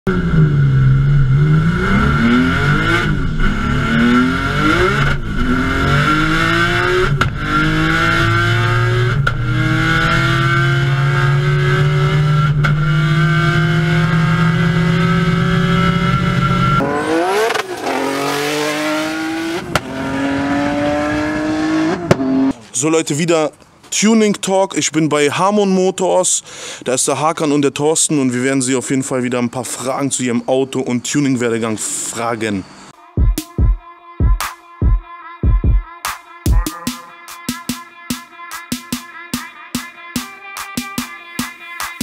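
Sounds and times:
car engine accelerating: 0.1 - 22.7.

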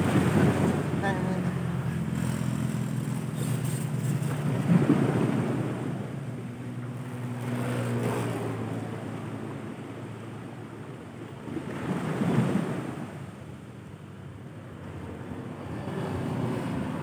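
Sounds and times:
waves washing against rocks: 0.0 - 8.3, 11.4 - 13.4
wind on microphone: 0.0 - 13.6, 14.6 - 17.0.

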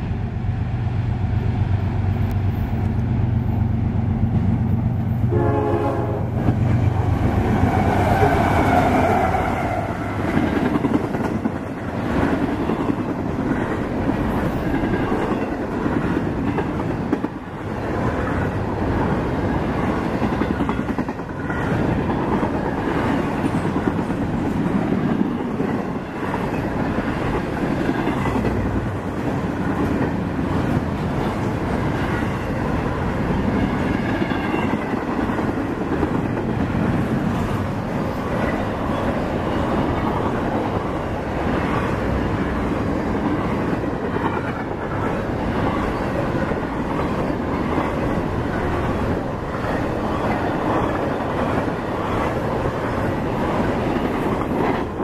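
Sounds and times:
diesel locomotive engines droning: 0.0 - 55.0
train horn: 5.3 - 6.4, 7.7 - 10.0.

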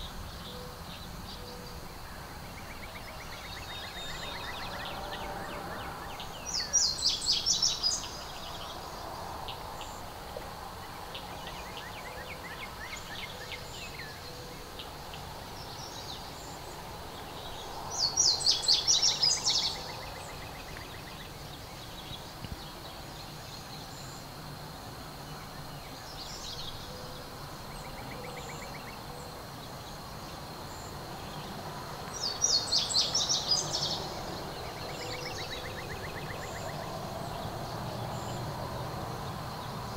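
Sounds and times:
songbird singing high phrase: 32.1 - 38.4.

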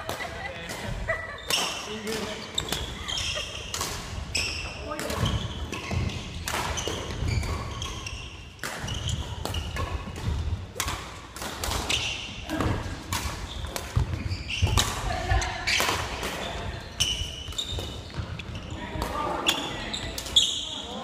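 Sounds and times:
rackets striking shuttlecock: 0.0 - 20.4
shoe squeaks on wooden floor: 1.4 - 3.7, 4.3 - 10.0, 13.4 - 20.9.

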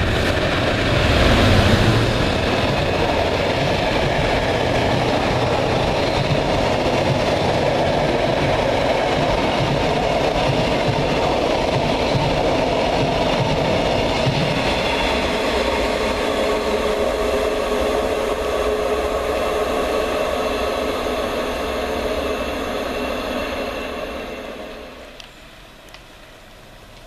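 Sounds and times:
train wheels clattering over rails: 0.0 - 17.5.

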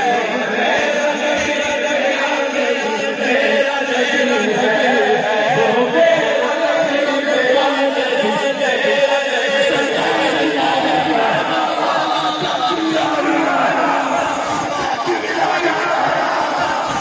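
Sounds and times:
men chanting in unison: 0.0 - 17.0.

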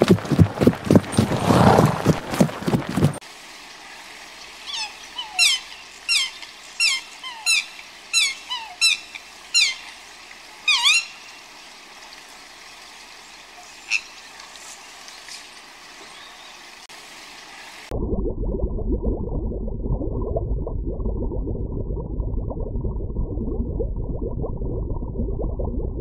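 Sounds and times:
swan calling: 4.6 - 10.0, 10.6 - 11.3, 13.5 - 14.2.

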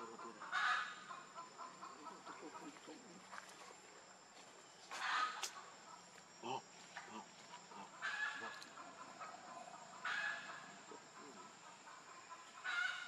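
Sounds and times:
faint low animal call: 6.4 - 13.0.

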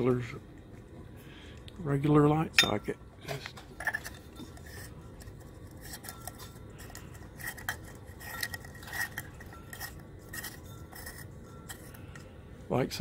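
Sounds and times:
bulb clicking and scraping in socket: 3.4 - 12.2.

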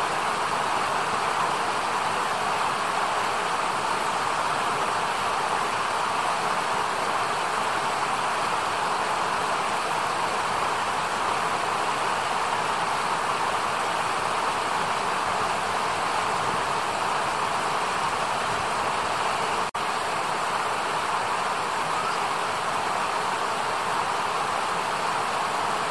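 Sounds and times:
river rushing over rocks: 0.0 - 25.9.

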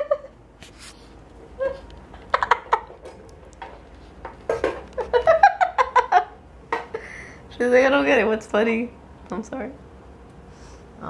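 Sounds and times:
woman laughing: 0.0 - 0.4, 1.6 - 2.9, 5.0 - 7.2.

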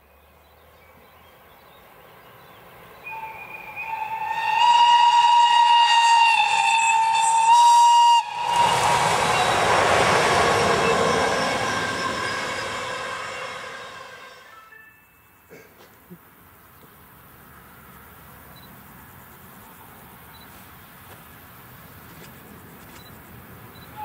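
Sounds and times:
train running past on track: 0.3 - 15.5, 22.3 - 24.0
train horn blast: 3.1 - 14.9.

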